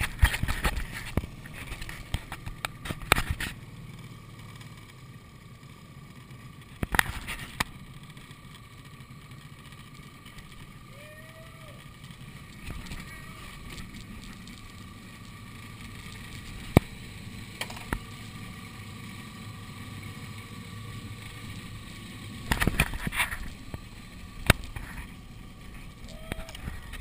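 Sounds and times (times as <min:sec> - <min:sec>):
boat motor running: 0:00.0 - 0:27.0
faint steady whine: 0:00.0 - 0:27.0.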